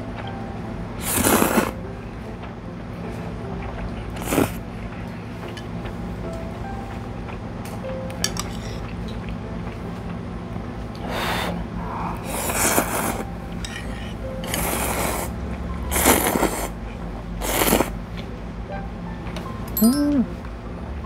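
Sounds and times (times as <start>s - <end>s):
noodles slurped: 1.0s - 1.8s, 4.2s - 4.6s, 12.2s - 13.2s, 14.4s - 16.8s, 17.4s - 18.0s.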